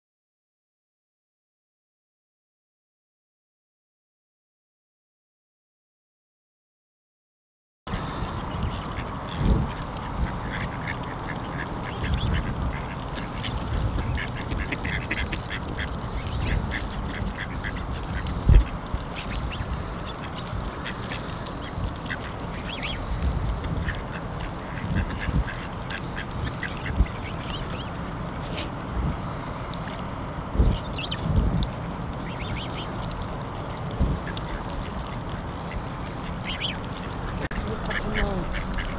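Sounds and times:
ducks quacking: 7.9 - 28.8, 31.9 - 38.9.

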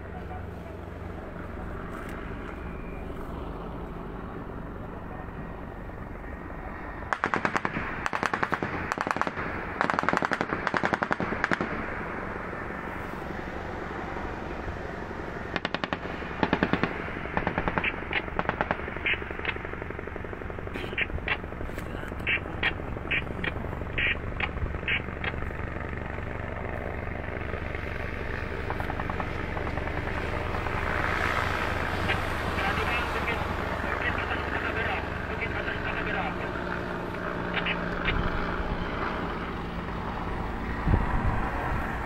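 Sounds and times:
distant machine-gun fire: 7.1 - 12.0, 15.5 - 19.8.

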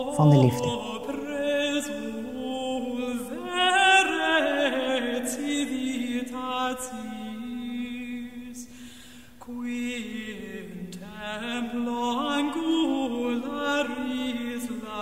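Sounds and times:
person chanting long notes: 0.0 - 0.9.

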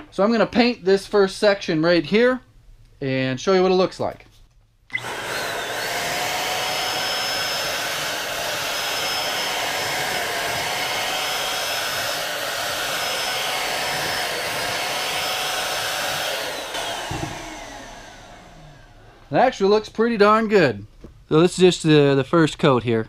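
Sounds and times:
paint sprayer motor whine: 4.9 - 19.3.

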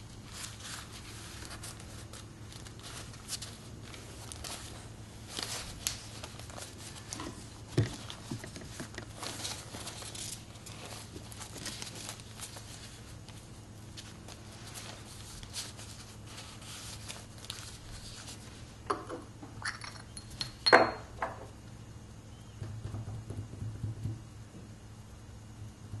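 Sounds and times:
paper rustling: 0.0 - 18.7
porcelain jar lid clinking: 19.6 - 21.1.

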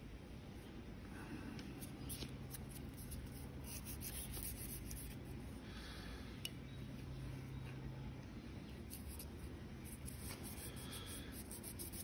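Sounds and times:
sandpaper scratching steel blade: 9.9 - 12.0.

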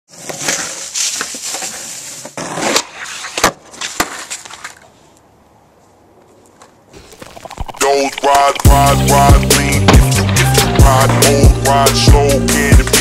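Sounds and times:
skateboard wheels rolling on asphalt: 0.1 - 8.4.

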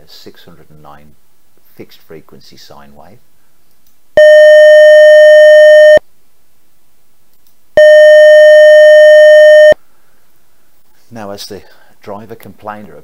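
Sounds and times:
loud sine tone: 4.2 - 6.0, 7.8 - 9.8.

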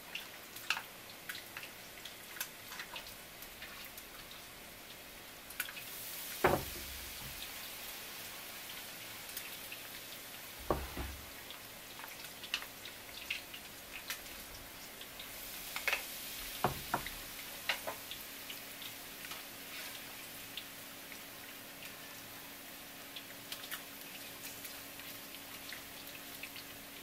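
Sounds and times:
tempura frying in hot oil: 0.0 - 27.0
dull knocks: 6.4 - 7.4, 10.6 - 11.3.

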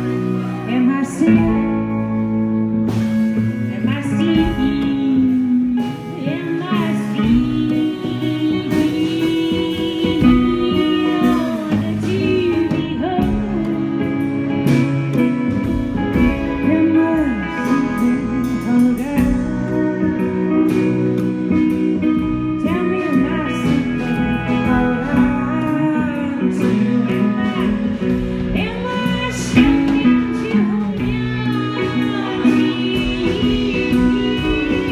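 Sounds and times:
electric guitar: 0.0 - 34.9
plucked double bass: 0.0 - 34.9
woman singing: 0.0 - 34.9.

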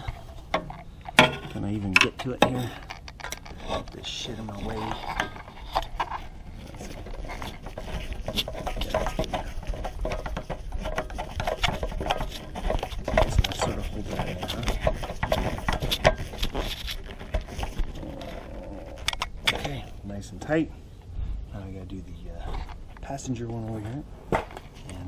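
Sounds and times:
screwdriver clicking and scraping: 0.0 - 18.0.

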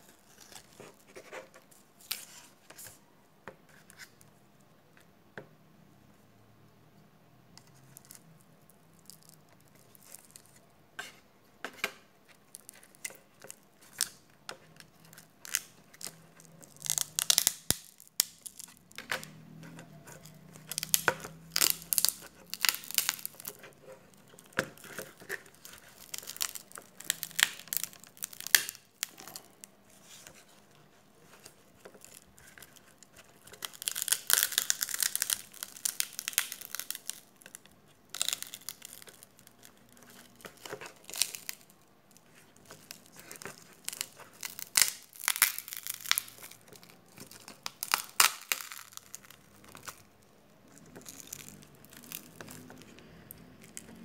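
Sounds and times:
glass crackling and snapping: 14.8 - 29.6, 31.8 - 41.7, 42.6 - 50.1, 50.7 - 52.8
adhesive tearing: 14.8 - 54.0.

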